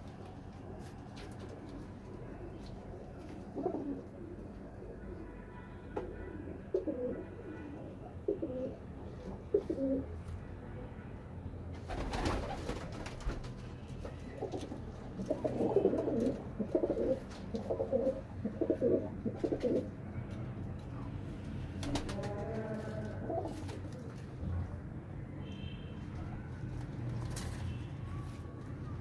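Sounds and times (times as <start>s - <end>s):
pigeons cooing: 3.4s - 5.2s, 6.4s - 10.1s, 14.4s - 19.9s, 21.8s - 24.2s.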